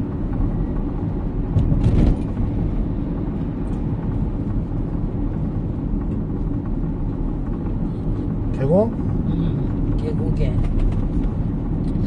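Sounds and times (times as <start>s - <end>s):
car cabin road and engine rumble: 0.0s - 12.0s
clatter: 1.2s - 2.5s, 9.7s - 12.0s.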